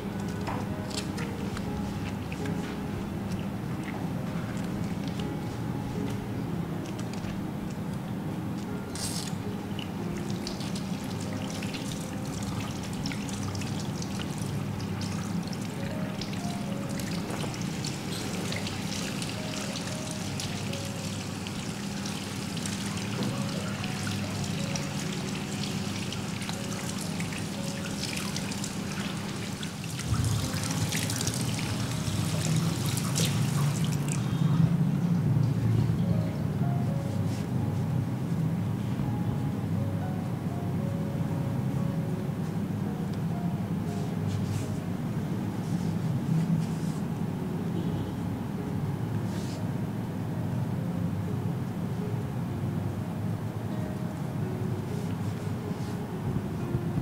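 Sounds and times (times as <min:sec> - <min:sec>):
water trickling and pouring: 0:10.1 - 0:34.4
steady low hum: 0:28.4 - 0:57.0.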